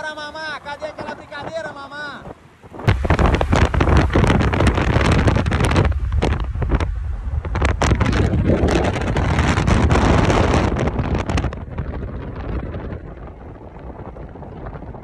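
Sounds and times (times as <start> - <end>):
wind buffeting microphone: 0.0 - 15.0
crackles and knocks: 2.8 - 15.0.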